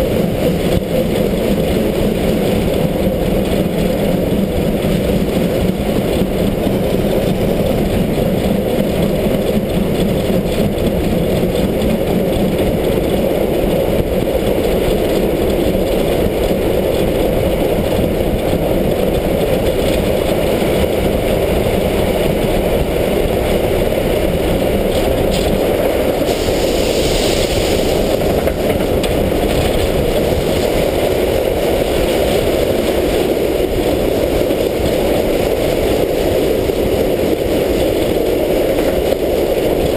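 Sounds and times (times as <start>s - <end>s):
steam locomotive roaring in tunnel: 0.0s - 39.9s
steam hiss: 25.4s - 29.0s.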